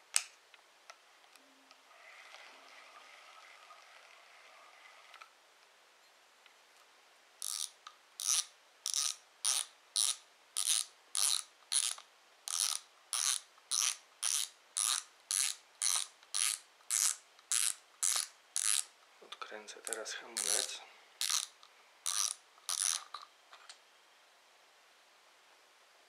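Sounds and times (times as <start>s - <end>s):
fishing reel drag clicking: 7.4s - 18.9s, 20.4s - 23.1s.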